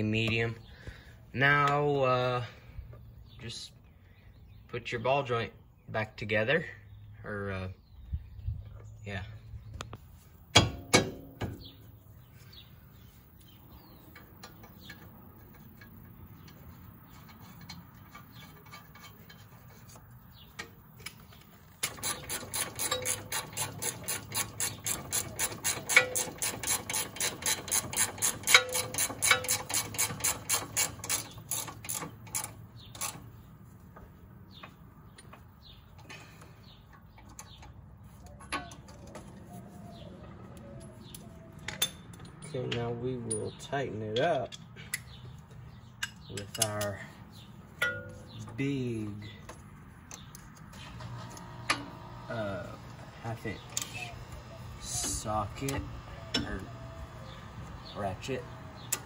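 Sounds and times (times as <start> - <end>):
ratchet wrench clicking: 21.8 - 33.2.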